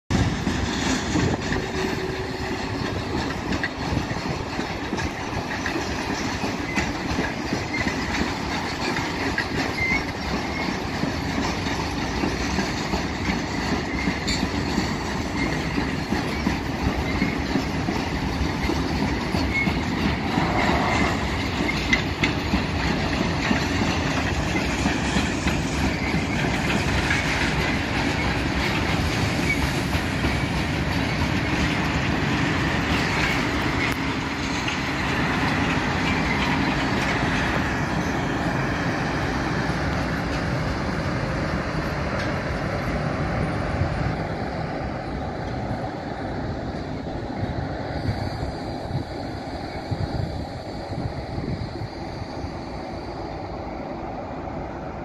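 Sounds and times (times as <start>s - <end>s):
wheels clacking over rail joints: 0.1s - 48.1s
freight train rumbling past: 0.1s - 55.0s
faint wheel squeals: 7.6s - 11.0s.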